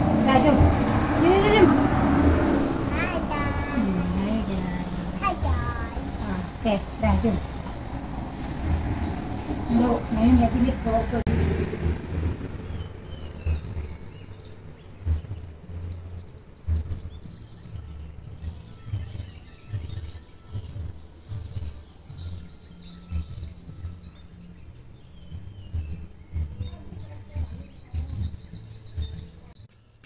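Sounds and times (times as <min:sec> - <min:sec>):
low rumbling on microphone: 0:00.0 - 0:18.0
insect drone: 0:00.0 - 0:26.6.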